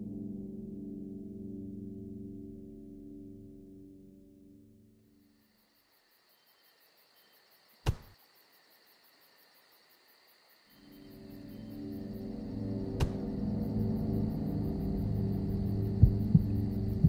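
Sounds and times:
low droning ambient music: 0:00.0 - 0:04.9, 0:10.8 - 0:17.0
faint cricket-like chirping: 0:04.9 - 0:17.0
sharp thump: 0:07.8 - 0:08.2, 0:13.0 - 0:13.3.

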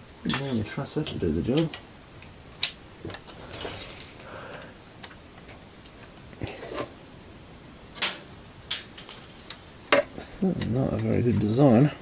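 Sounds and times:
scraping rustle: 0:03.0 - 0:04.3, 0:05.4 - 0:07.0.

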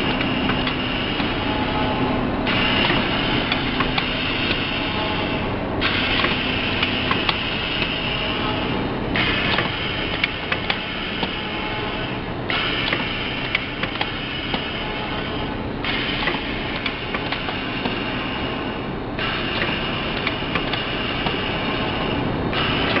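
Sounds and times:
sealing machine clicking and clacking: 0:09.2 - 0:11.4, 0:15.9 - 0:18.0, 0:19.2 - 0:23.0.

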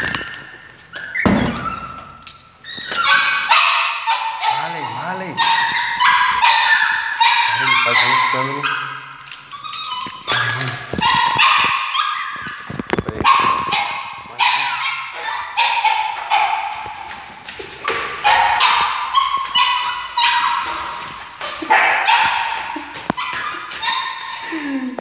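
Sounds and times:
small dog yelping and whining: 0:00.0 - 0:16.8, 0:18.2 - 0:24.7.

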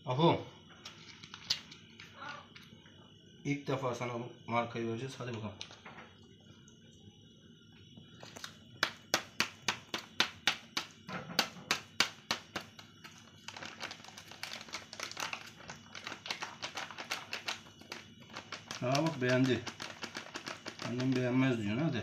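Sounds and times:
kibble rattling on plastic plate: 0:11.4 - 0:21.6
cat crunching dry kibble: 0:13.4 - 0:21.3.

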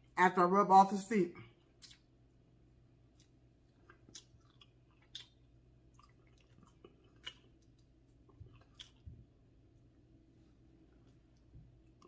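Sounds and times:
mouth chewing with wet smacks: 0:01.5 - 0:02.4, 0:03.0 - 0:09.9.

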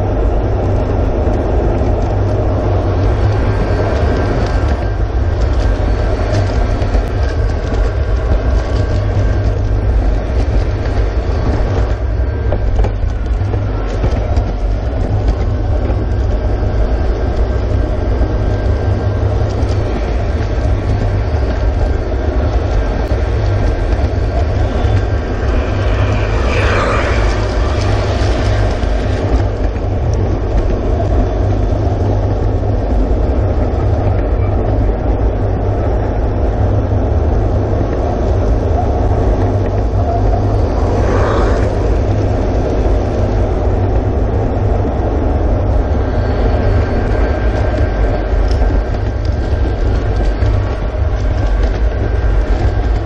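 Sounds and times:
model train wheels on rail: 0:37.3 - 0:53.0.

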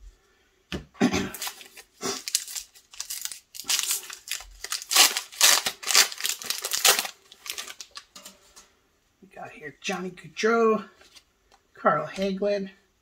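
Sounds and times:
wrapper tearing and crinkling: 0:01.3 - 0:08.2.

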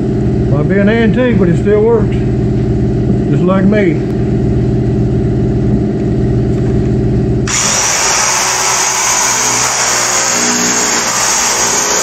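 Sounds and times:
sander grinding paint hiss: 0:07.5 - 0:12.0.

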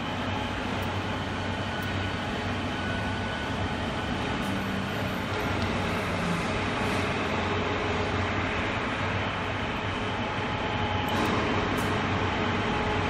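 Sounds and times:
injector test bench running: 0:00.0 - 0:13.0.

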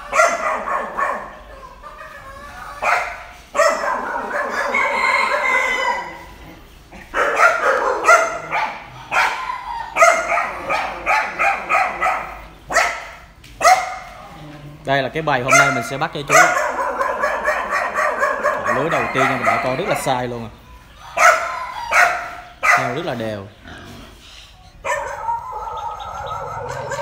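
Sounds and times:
dog barking: 0:00.0 - 0:02.1, 0:02.8 - 0:06.3, 0:07.0 - 0:14.2, 0:15.4 - 0:20.1, 0:21.0 - 0:23.1, 0:24.8 - 0:27.0
rooster crowing: 0:03.6 - 0:06.6, 0:15.7 - 0:22.6, 0:24.9 - 0:27.0.

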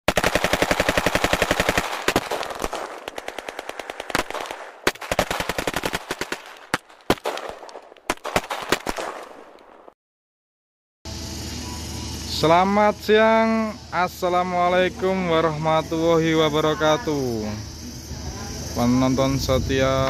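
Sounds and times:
automatic gunfire: 0:00.1 - 0:09.9.

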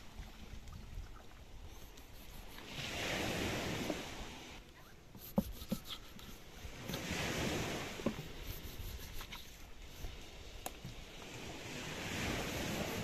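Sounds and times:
surf washing ashore: 0:01.7 - 0:13.0
wind on microphone: 0:05.2 - 0:13.0.

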